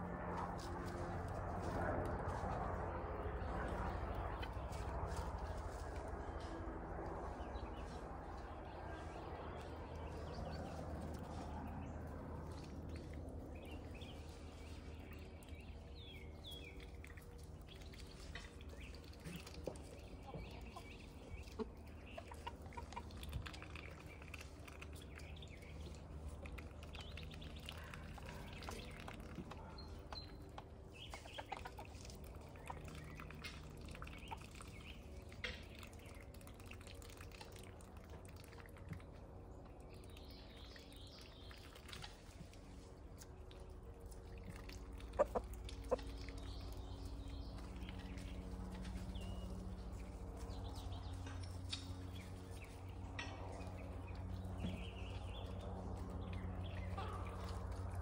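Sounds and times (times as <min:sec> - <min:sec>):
faint low hum: 0:00.0 - 0:58.0
poultry clucking: 0:19.6 - 0:23.3, 0:30.9 - 0:32.8, 0:44.9 - 0:46.8.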